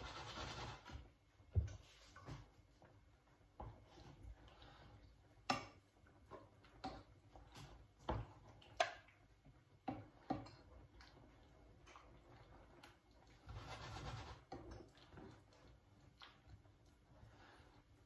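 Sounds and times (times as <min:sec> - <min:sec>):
spatula scraping a pan: 0:00.0 - 0:01.0, 0:13.4 - 0:14.8
wooden spatula tapping a pan: 0:05.4 - 0:07.2.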